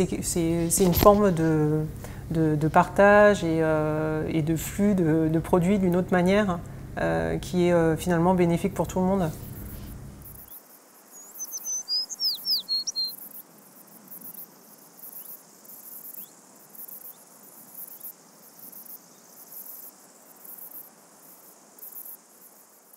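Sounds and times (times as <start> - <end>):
insects chirring: 0.0 - 22.9
bird sweeping chirps: 11.1 - 13.2.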